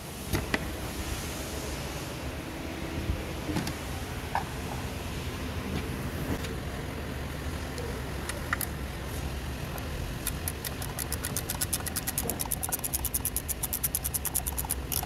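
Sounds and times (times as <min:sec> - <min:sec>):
low background hum: 0:00.0 - 0:15.0
ratchet wrench clicking: 0:10.2 - 0:15.0.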